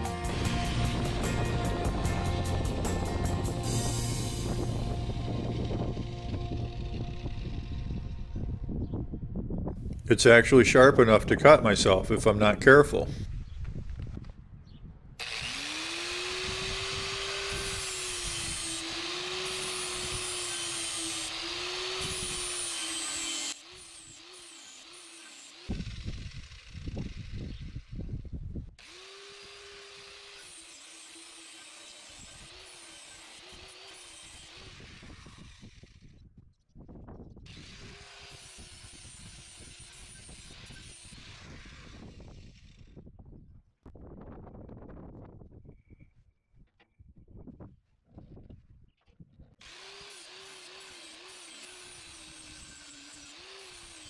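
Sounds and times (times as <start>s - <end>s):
angle grinder grinding steel: 0.0s - 8.6s, 15.2s - 27.8s, 28.8s - 36.0s, 37.5s - 42.7s, 49.6s - 54.0s
low rumbling noise: 0.0s - 10.2s.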